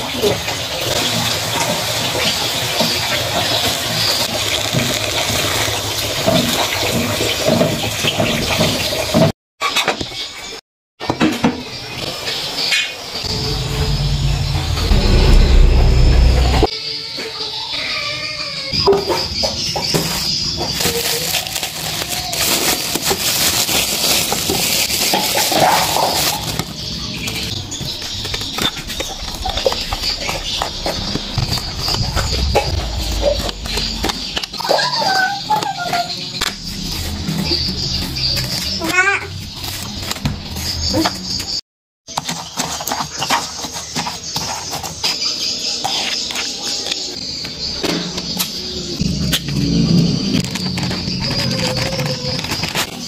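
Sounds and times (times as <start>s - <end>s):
plastic bag rustling: 20.6s - 26.7s.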